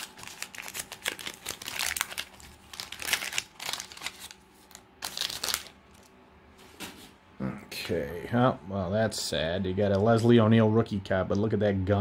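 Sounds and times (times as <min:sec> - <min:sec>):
wax paper wrapper crinkling: 0:00.0 - 0:06.2.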